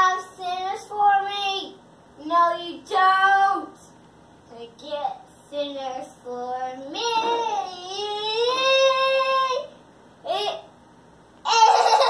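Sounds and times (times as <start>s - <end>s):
toddler singing wordless notes: 4.5s - 10.7s.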